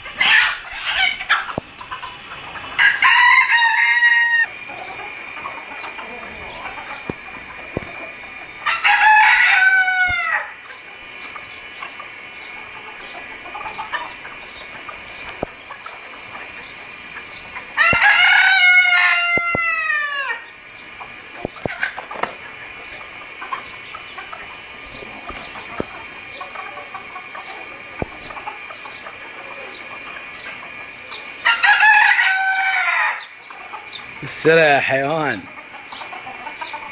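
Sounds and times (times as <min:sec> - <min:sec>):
hens clucking: 0:00.0 - 0:36.9
rooster crowing: 0:02.7 - 0:04.9, 0:08.6 - 0:10.6, 0:17.7 - 0:20.5, 0:31.4 - 0:33.4.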